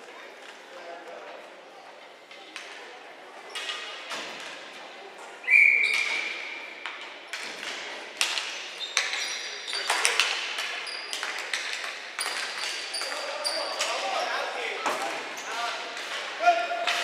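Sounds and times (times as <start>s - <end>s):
sticks and ball clacking on concrete: 6.8s - 17.0s.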